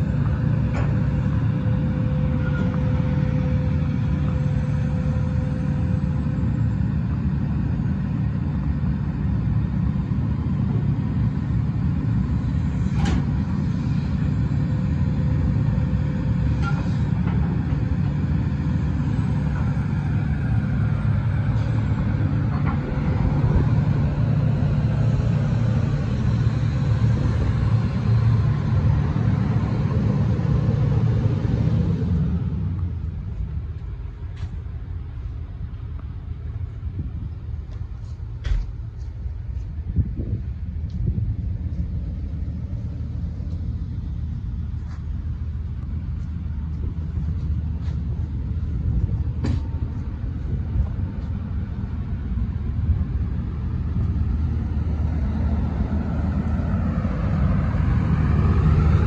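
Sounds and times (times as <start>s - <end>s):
excavator diesel engine: 0.0s - 59.0s
hydraulic boom working: 11.6s - 32.6s.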